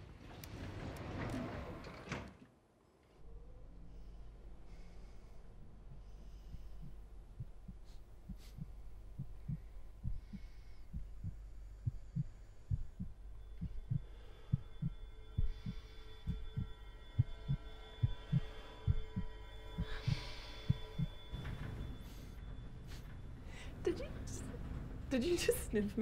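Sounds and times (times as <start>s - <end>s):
heartbeat thuds: 5.8s - 23.0s
high multi-tone drone: 12.9s - 23.1s.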